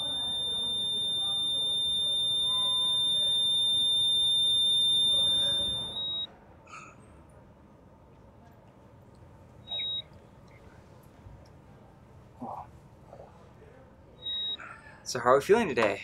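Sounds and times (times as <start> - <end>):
heart monitor flatline tone: 0.0 - 6.3
short monitor beep: 0.0 - 6.3, 9.7 - 10.0.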